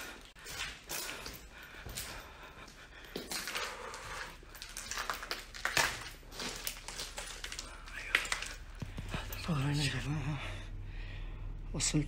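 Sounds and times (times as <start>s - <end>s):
man breathing heavily: 0.0s - 4.8s, 10.1s - 11.7s
footsteps scuffing on rubble: 0.0s - 10.0s.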